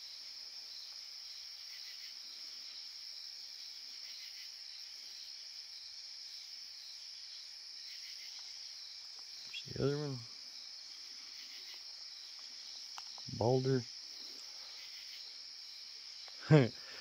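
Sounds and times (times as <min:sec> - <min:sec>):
night insects trilling: 0:00.0 - 0:17.0.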